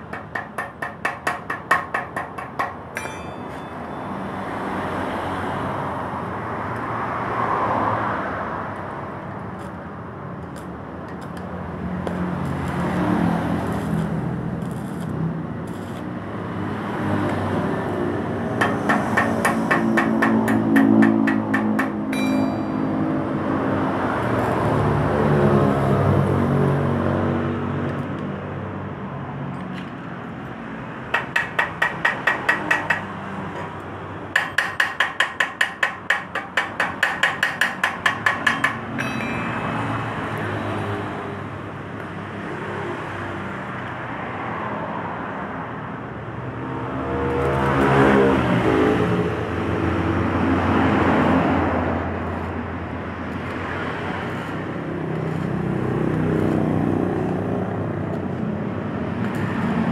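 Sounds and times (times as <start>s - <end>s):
road traffic: 0.0s - 59.9s
passing vehicle engine: 4.1s - 9.6s, 11.6s - 29.7s, 38.7s - 59.9s
metallic tapping on muffler: 18.6s - 23.2s, 34.4s - 39.8s.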